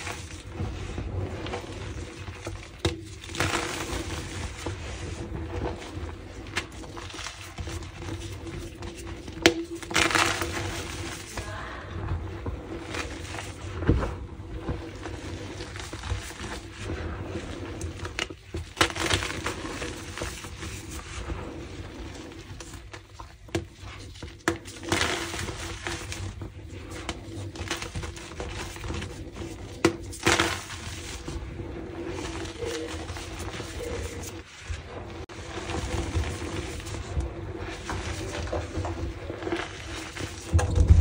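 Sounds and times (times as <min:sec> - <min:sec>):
chalk crunching and snapping: 0:09.3 - 0:11.2.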